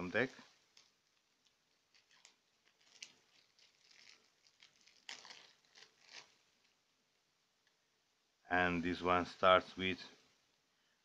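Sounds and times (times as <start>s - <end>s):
plastic wrap crinkling and tearing: 0.2s - 6.8s.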